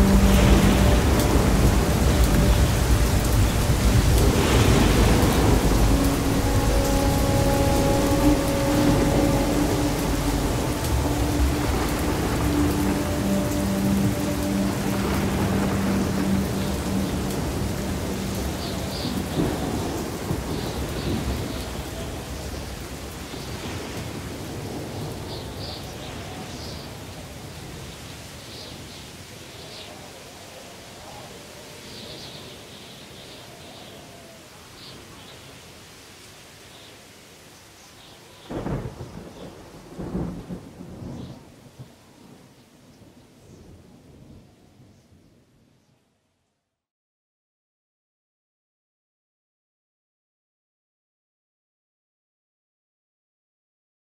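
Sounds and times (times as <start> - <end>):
low rumble of thunder: 0.0 - 27.9, 38.4 - 45.7
steady rain: 0.0 - 46.4.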